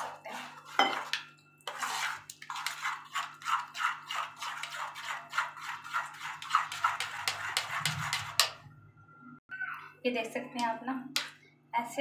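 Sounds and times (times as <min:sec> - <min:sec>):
spoon stirring batter in steel bowl: 0:00.0 - 0:08.7.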